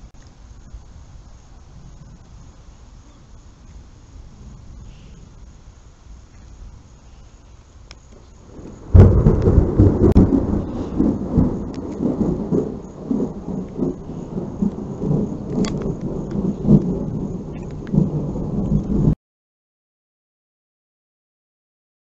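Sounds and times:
rolling thunder rumble: 0:00.0 - 0:07.8, 0:08.4 - 0:19.2
thunder crack: 0:08.4 - 0:19.2.

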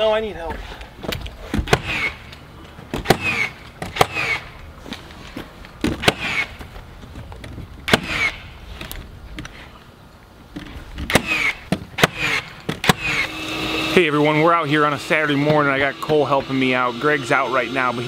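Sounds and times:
nail gun firing: 0:01.6 - 0:02.2, 0:03.0 - 0:04.5, 0:05.9 - 0:06.6, 0:07.9 - 0:08.5, 0:11.1 - 0:13.8.

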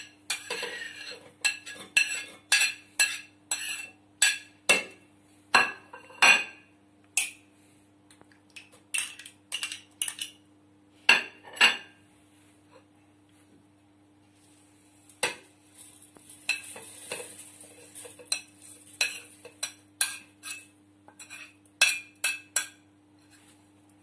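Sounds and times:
metal spoon scraping and tapping: 0:00.0 - 0:05.0, 0:07.2 - 0:07.4, 0:08.6 - 0:10.4, 0:16.2 - 0:23.5.

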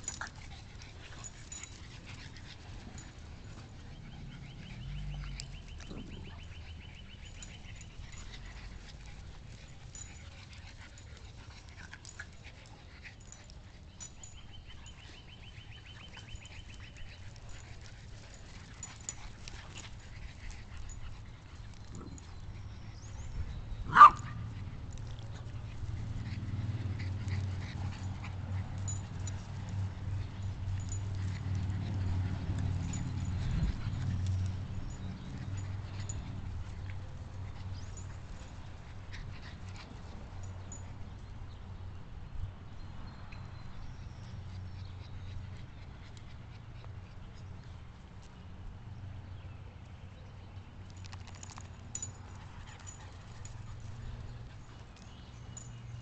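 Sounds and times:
small dog yipping: 0:23.9 - 0:24.4.

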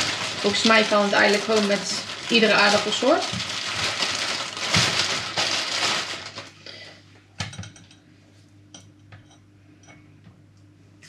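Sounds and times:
potatoes tumbling into bowl: 0:00.0 - 0:06.5.

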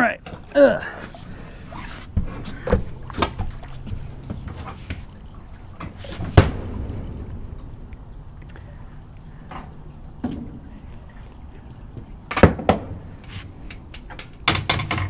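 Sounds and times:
thumps on dock deck: 0:05.8 - 0:08.9.

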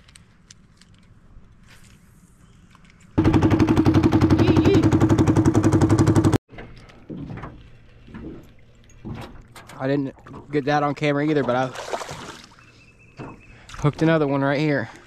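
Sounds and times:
small boat motor puttering: 0:03.2 - 0:07.0.

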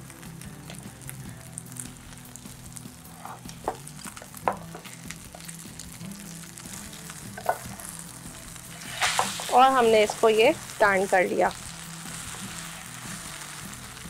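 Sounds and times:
omelette sizzling in oil: 0:00.0 - 0:14.0
spatula tapping and scraping pan: 0:07.4 - 0:07.7.

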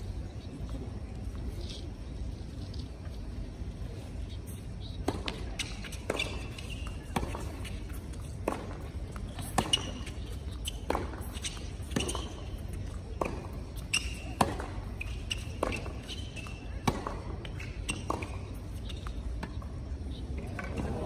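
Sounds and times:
low crowd hum: 0:00.0 - 0:21.0
tennis ball bounces: 0:04.9 - 0:21.0.

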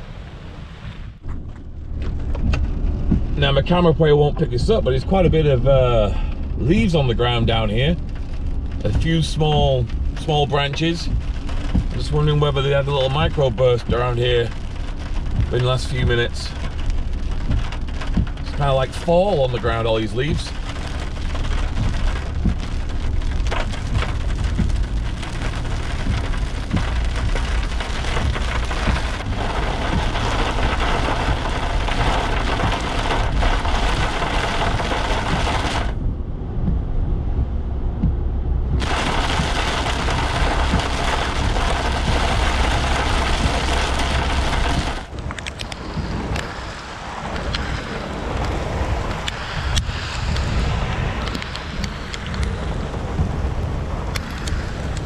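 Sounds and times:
heavy rain on car roof: 0:00.0 - 0:55.0
low road rumble: 0:00.0 - 0:55.0.

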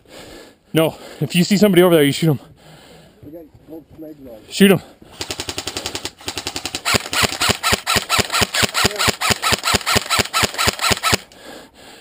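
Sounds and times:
airsoft rifle automatic fire: 0:05.2 - 0:11.3.

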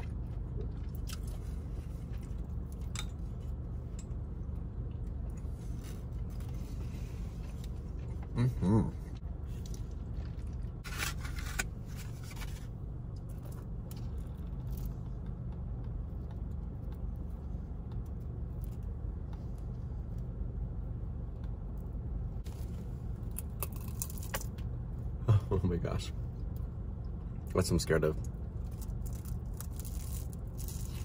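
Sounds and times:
crunching bites into crust: 0:00.0 - 0:03.6, 0:23.2 - 0:24.7, 0:28.2 - 0:31.0
low car cabin hum: 0:00.0 - 0:31.0
paper and cardboard rustling: 0:10.8 - 0:12.7.

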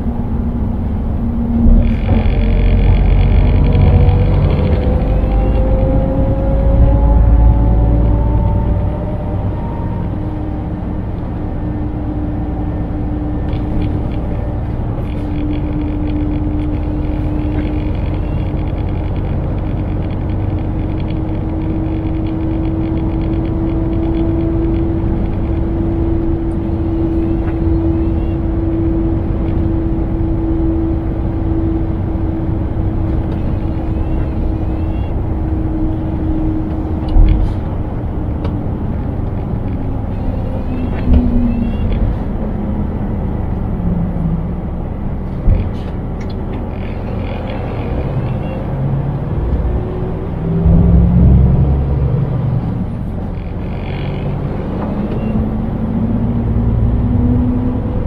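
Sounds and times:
road rumble: 0:00.0 - 0:58.0
truck engine drone: 0:00.0 - 0:58.0.

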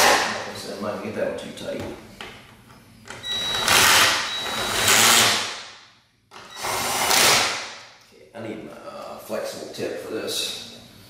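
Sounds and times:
cordless drill spinning: 0:03.3 - 0:05.4.

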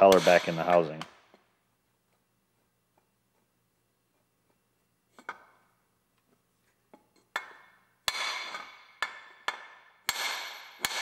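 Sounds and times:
hammer striking metal shaft: 0:00.0 - 0:01.0, 0:07.3 - 0:11.0.

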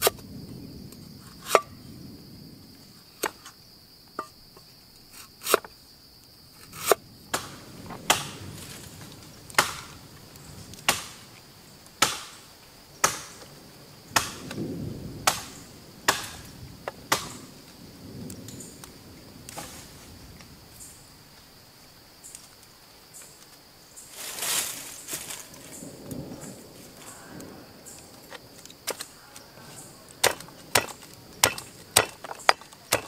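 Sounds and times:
high trill of insects: 0:00.0 - 0:33.0
cleaver chopping on wooden board: 0:30.2 - 0:33.0.

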